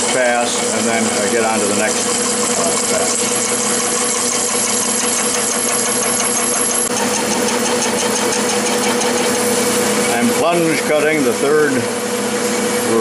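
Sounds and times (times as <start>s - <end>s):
lathe motor and gear hum: 0.0s - 13.0s
rapid even ticking: 0.8s - 9.6s.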